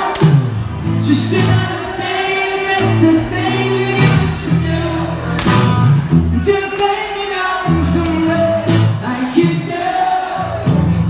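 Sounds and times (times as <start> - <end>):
tambourine: 0.0 - 4.6, 5.4 - 6.1, 6.7 - 9.0
sharp percussive hits: 0.0 - 4.8, 5.4 - 9.0.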